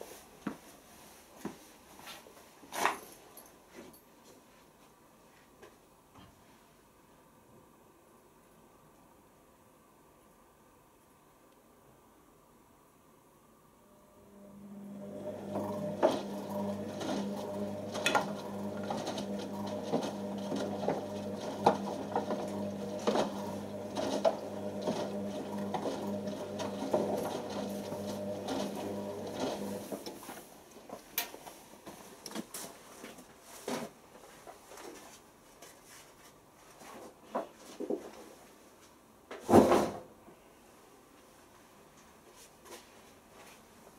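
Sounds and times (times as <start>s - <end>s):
washing machine motor hum: 13.9s - 30.2s.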